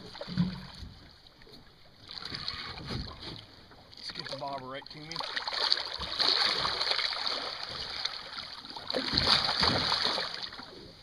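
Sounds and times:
fish splashing at water surface: 5.1s - 10.7s.

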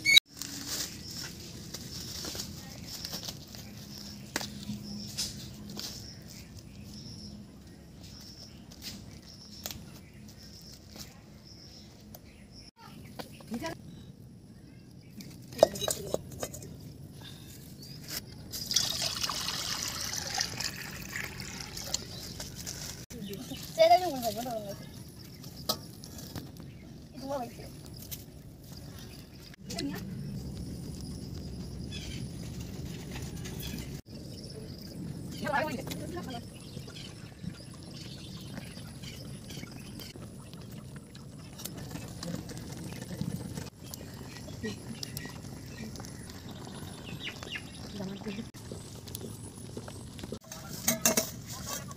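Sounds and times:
water pouring into metal pan: 18.6s - 22.2s
steady low rumble: 26.6s - 50.4s
liquid bubbling and sputtering: 36.6s - 50.4s.

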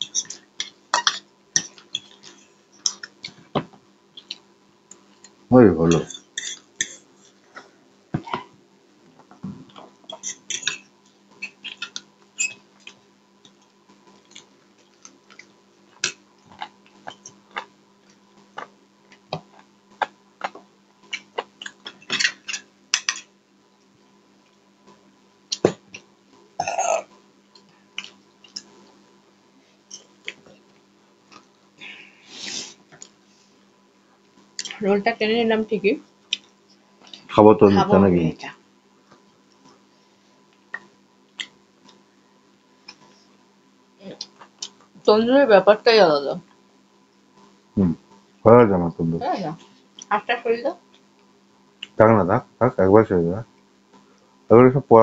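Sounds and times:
faint steady hum: 0.0s - 55.0s
chewing and lip smacks: 4.2s - 5.3s, 12.8s - 22.0s, 27.5s - 28.9s, 29.9s - 31.5s, 36.2s - 37.3s, 40.5s - 42.0s, 44.2s - 44.9s
throaty mouth sound: 47.8s - 48.0s.

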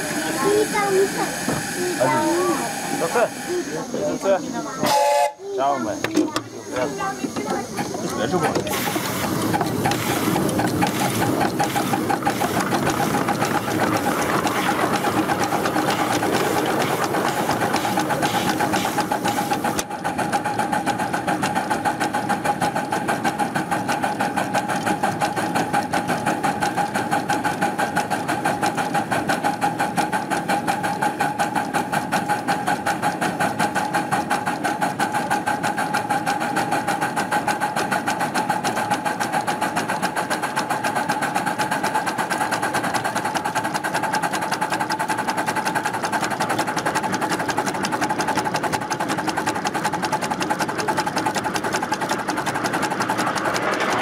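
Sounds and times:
steam hiss: 0.0s - 19.8s
miniature steam locomotive running: 0.0s - 54.0s.

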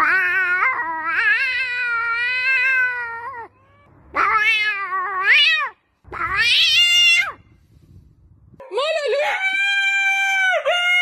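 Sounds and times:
cat meowing: 0.0s - 7.4s.

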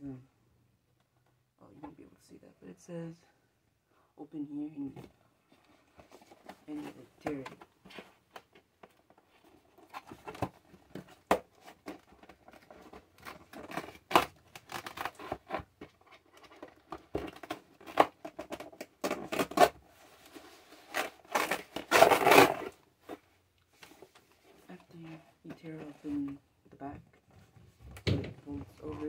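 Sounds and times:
cardboard box tearing: 9.8s - 15.8s, 16.4s - 22.8s.

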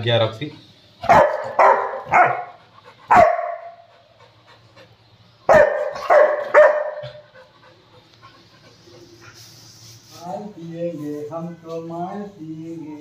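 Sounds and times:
dog barking: 1.0s - 3.8s, 5.5s - 7.2s.

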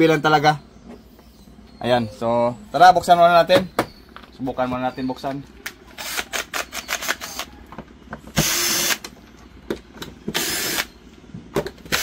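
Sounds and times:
cordless drill whirring: 6.0s - 7.5s, 8.4s - 9.1s, 10.3s - 11.0s.

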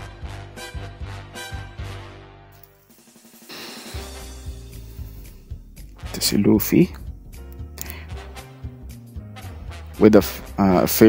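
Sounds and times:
background music: 0.0s - 11.0s
drum beat: 2.9s - 8.9s.

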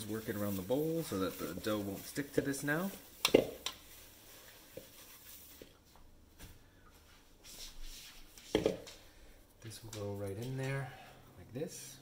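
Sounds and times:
paper towel rustling: 0.0s - 6.0s.

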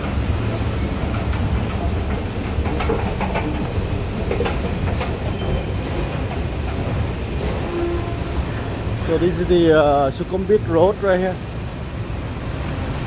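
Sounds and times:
light clacks: 0.0s - 7.1s.

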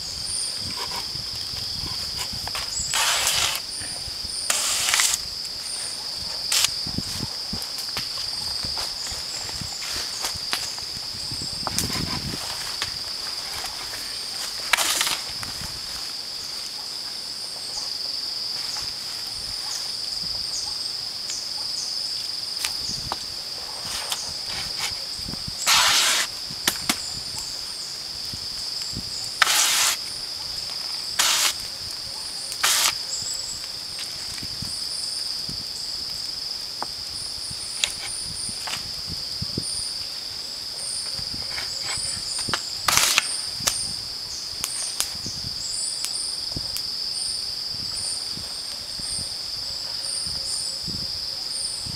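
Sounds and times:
high-pitched insect drone: 0.0s - 7.5s, 32.6s - 33.6s
knife scraping plant fibre: 1.9s - 3.7s, 4.4s - 5.2s, 14.7s - 15.3s, 25.6s - 26.3s, 29.4s - 30.0s, 31.2s - 31.6s, 32.6s - 33.0s, 42.9s - 43.4s.

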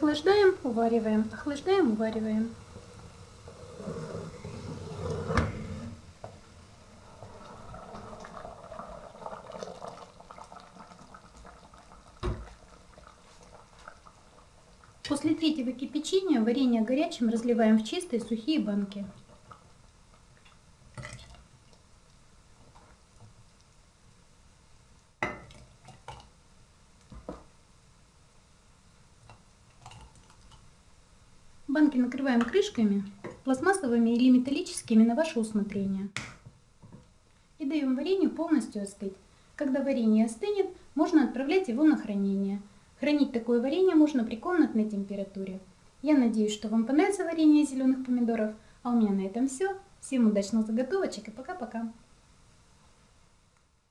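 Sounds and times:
jam boiling and popping in a pot: 0.0s - 27.7s, 28.8s - 35.2s, 36.1s - 37.5s.

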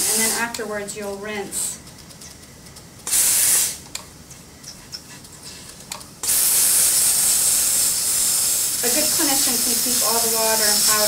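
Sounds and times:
air polisher hissing: 3.1s - 3.8s, 6.2s - 11.0s.

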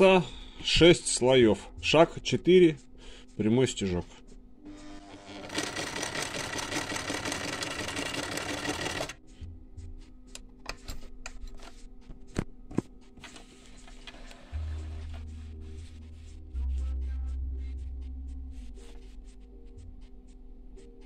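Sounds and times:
sewing machine stitching: 5.1s - 9.2s.

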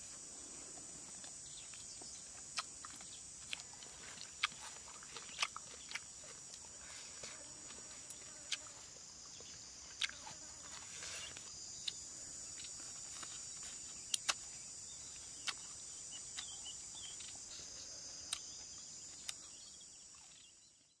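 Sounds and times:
insect chorus chirring: 0.0s - 21.0s.

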